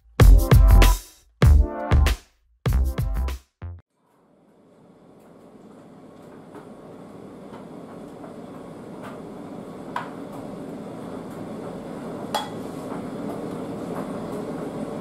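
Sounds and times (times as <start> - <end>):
kitchenware clinking against bowl: 12.4 - 12.6.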